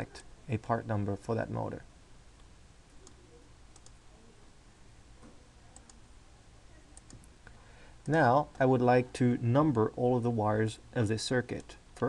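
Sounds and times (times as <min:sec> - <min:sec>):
low steady hum: 0:00.0 - 0:12.0
computer mouse clicks: 0:02.9 - 0:04.0, 0:05.8 - 0:06.0, 0:07.0 - 0:07.3.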